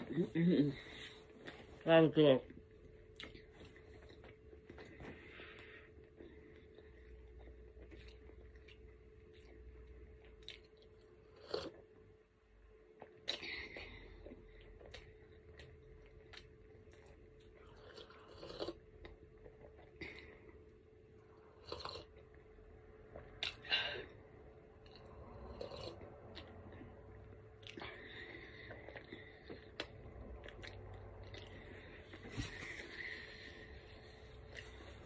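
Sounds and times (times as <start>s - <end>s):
faint steady hum: 0.0s - 35.0s
chewing clicks and lip smacks: 7.4s - 11.7s.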